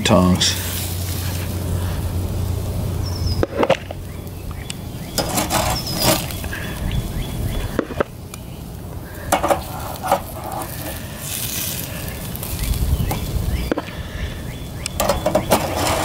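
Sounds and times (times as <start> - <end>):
low rumble: 0.0 - 14.9
metal tongs scraping grill basket: 5.1 - 6.6, 9.2 - 13.8, 14.9 - 16.0
sharp clicks: 14.8 - 15.6.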